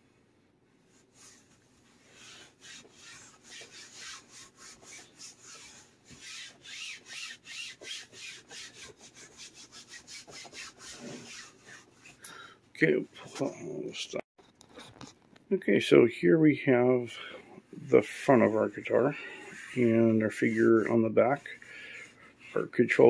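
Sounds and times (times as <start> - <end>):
hands rubbing fabric: 0.8 - 12.2, 17.8 - 23.0.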